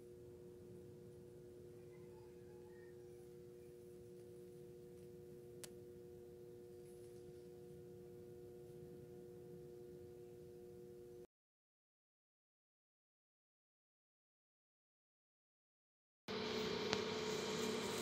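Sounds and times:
faint hum of two tones: 0.0s - 11.3s.

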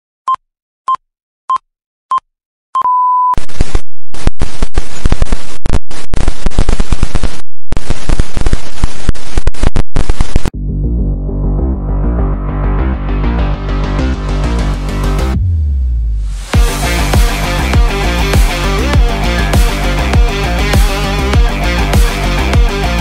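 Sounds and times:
harsh digital static: 3.4s - 10.5s
music: 10.6s - 23.0s.

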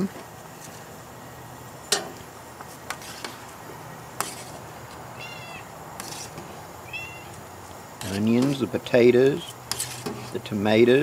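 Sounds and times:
steady background hiss: 0.0s - 11.0s
cat meowing: 5.1s - 5.7s, 6.8s - 7.4s.

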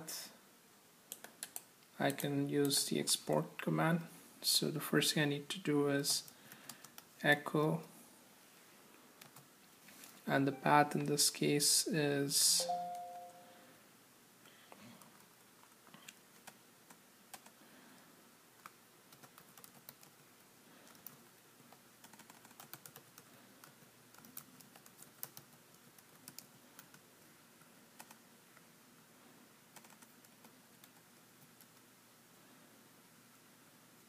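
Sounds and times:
keyboard typing: 6.6s - 7.0s, 15.0s - 17.6s, 18.6s - 27.0s, 28.0s - 28.2s, 29.7s - 31.8s.

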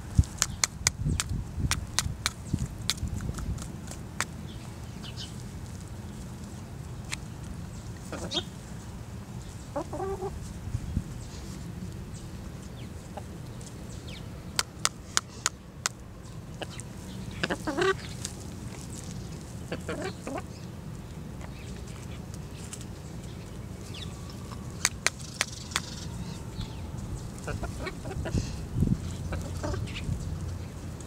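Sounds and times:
hen clucking: 8.0s - 8.6s, 9.7s - 10.4s, 16.6s - 18.3s, 19.6s - 20.6s, 27.4s - 28.6s, 29.2s - 30.1s.

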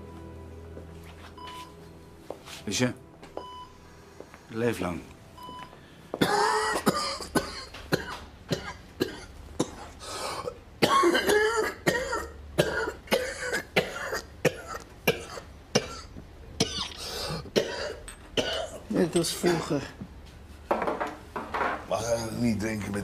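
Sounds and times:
man coughing harshly: 6.2s - 16.8s, 17.6s - 18.8s.

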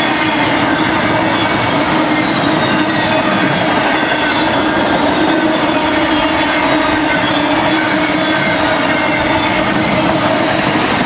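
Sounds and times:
freight train rolling past: 0.0s - 11.0s.

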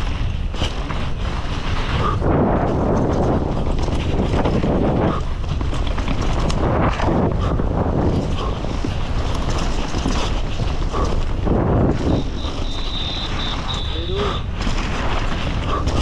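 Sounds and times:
bike chain and suspension rattling: 0.0s - 16.0s
bike tyres on dirt: 0.0s - 16.0s
wind rumble on microphone: 0.0s - 16.0s.

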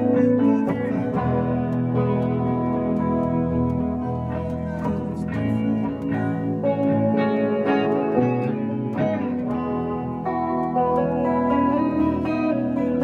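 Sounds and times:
electric guitars: 0.0s - 13.0s
keyboard chords: 0.0s - 13.0s.

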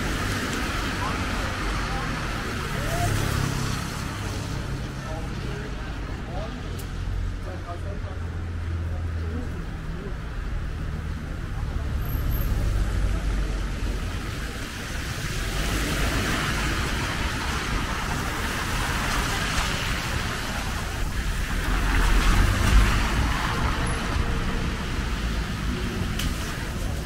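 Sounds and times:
cars passing on city street: 0.0s - 27.0s.

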